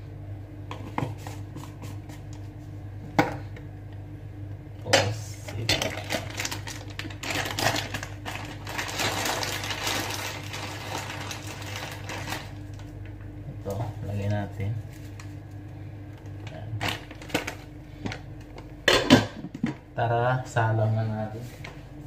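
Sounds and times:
steady low hum: 0:00.0 - 0:22.0
plastic bag crinkling: 0:05.7 - 0:13.1.

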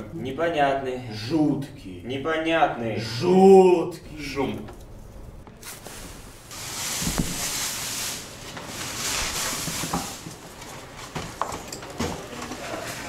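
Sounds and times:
straw rustling in a cardboard box: 0:05.5 - 0:11.6.

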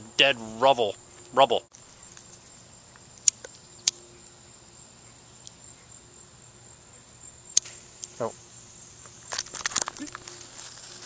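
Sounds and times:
crickets chirring: 0:00.0 - 0:11.0
lighter clicks: 0:07.5 - 0:08.1.

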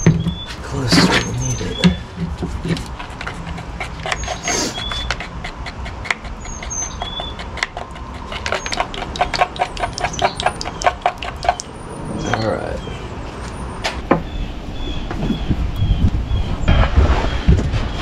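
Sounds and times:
stir stick scraping plastic cup: 0:00.9 - 0:12.4.

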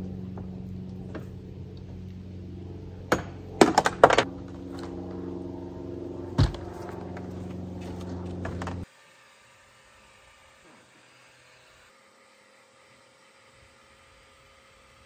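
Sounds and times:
steady low hum: 0:00.0 - 0:08.9
dull thump: 0:06.4 - 0:06.8.

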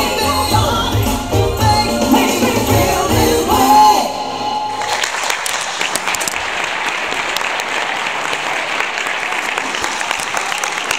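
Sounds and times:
audience applauding: 0:04.7 - 0:10.9.

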